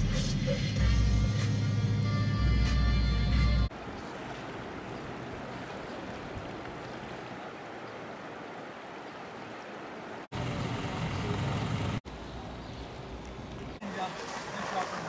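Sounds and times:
traffic rumble: 3.2 - 15.0
river rushing: 3.7 - 10.3, 13.5 - 15.0.

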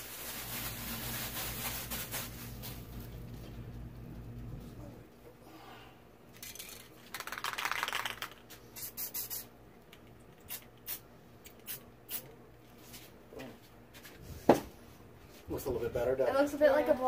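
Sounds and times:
spray paint can hissing: 7.2 - 9.5, 10.5 - 11.0.

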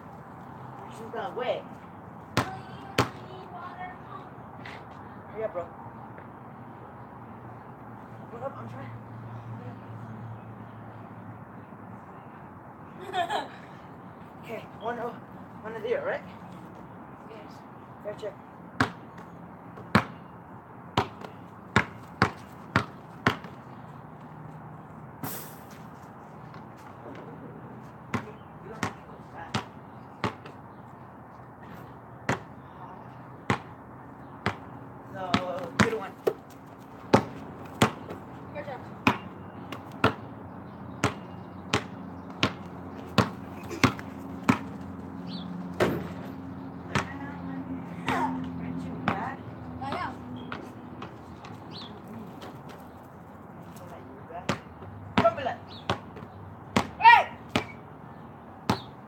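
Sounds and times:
basketball bouncing on concrete: 2.3 - 3.4, 18.8 - 20.3, 20.9 - 23.9, 28.0 - 30.6, 32.2 - 32.5, 33.4 - 47.4, 48.1 - 52.9, 54.4 - 57.8, 58.6 - 59.0.

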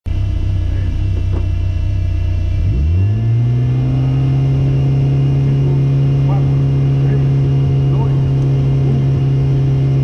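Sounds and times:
car engine idling and revving: 0.0 - 10.0.

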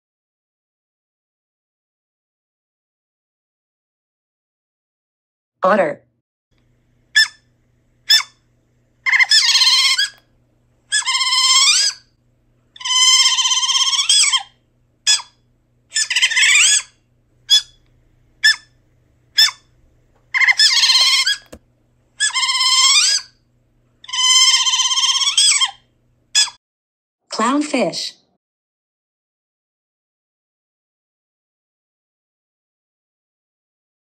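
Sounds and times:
otter calling: 7.1 - 8.4, 9.0 - 10.2, 10.9 - 12.1, 12.8 - 17.8, 18.4 - 21.6, 22.2 - 23.4, 24.0 - 26.6.

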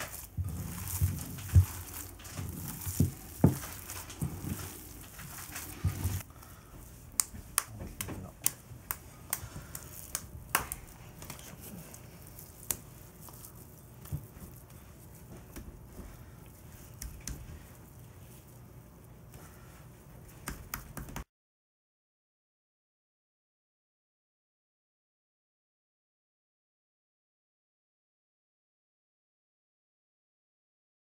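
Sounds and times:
hands slapping raw meat: 6.8 - 11.7, 16.8 - 17.6, 20.3 - 21.3.

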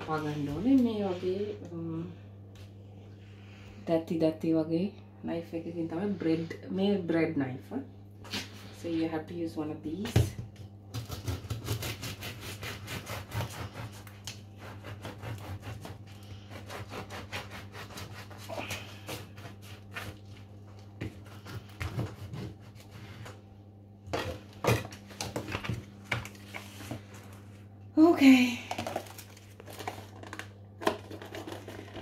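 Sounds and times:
bread knife sawing through crust: 11.1 - 20.2.

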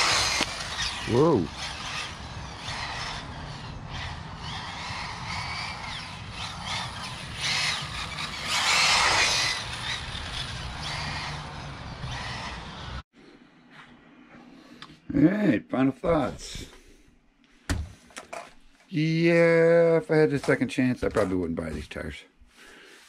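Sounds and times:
rc car motor whining: 0.0 - 13.0.

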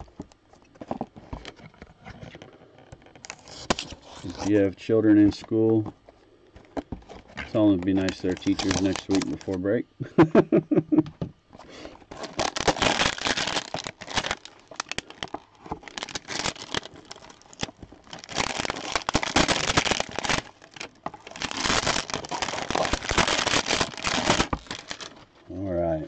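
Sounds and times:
packaging crinkling and tearing: 0.9 - 4.6, 6.7 - 9.6, 11.9 - 25.4.

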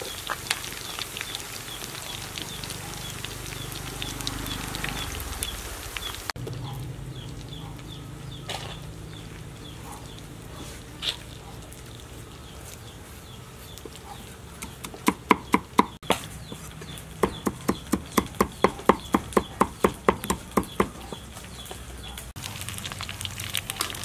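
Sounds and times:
food sizzling in a wok: 0.0 - 6.4, 22.4 - 24.0
cleaver chopping on wooden board: 14.6 - 16.6, 17.2 - 21.3.

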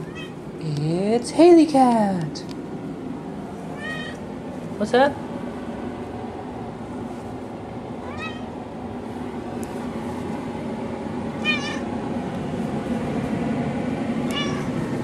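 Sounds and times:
cat meowing: 0.0 - 0.4, 3.8 - 4.2, 8.0 - 8.6, 11.4 - 11.8, 14.3 - 14.8
steady low hum: 0.0 - 15.0.

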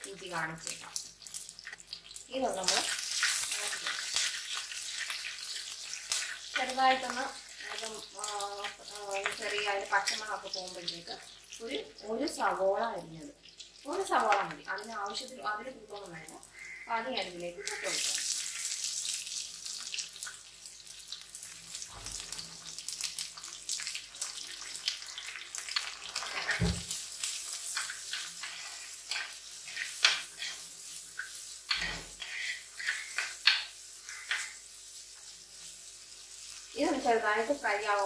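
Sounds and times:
onion sizzling in hot oil: 0.0 - 38.0.

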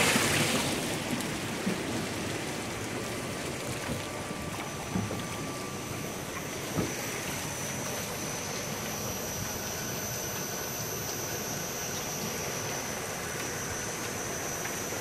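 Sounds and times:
fish pump rushing: 0.0 - 15.0
thin high whine: 4.2 - 15.0.

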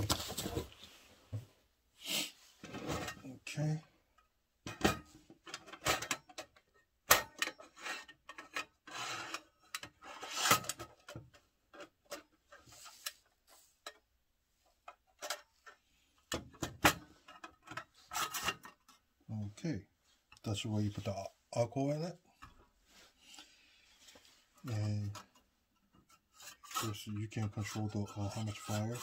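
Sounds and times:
metal stove parts clicking and scraping: 4.7 - 14.1, 14.9 - 19.0, 25.0 - 29.0.

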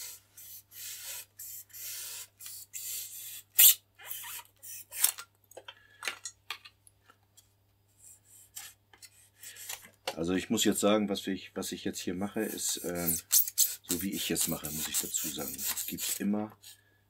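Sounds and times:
knife rasping through foam: 0.0 - 5.0, 12.4 - 16.8
scratches and clicks: 12.4 - 16.8.

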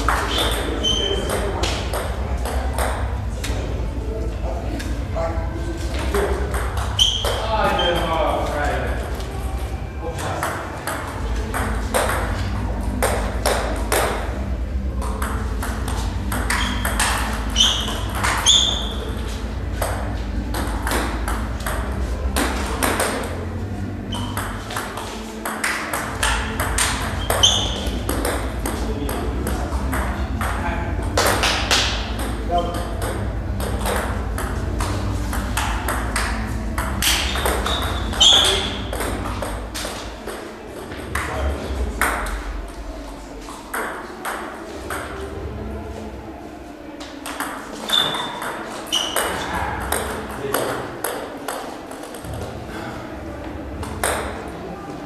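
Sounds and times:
shoes squeaking: 0.0 - 1.6, 5.8 - 8.2, 15.3 - 29.0, 32.2 - 41.1, 47.0 - 50.3
low hall hum: 0.0 - 55.0
short high squeaks: 6.9 - 7.9, 17.5 - 19.0, 27.2 - 28.0, 37.6 - 38.8, 47.9 - 49.4.

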